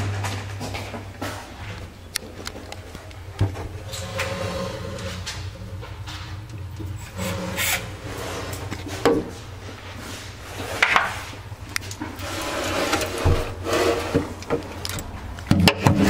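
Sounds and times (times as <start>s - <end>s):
low steady hum: 0.0s - 16.0s
metal part scraping against hull: 7.0s - 9.0s.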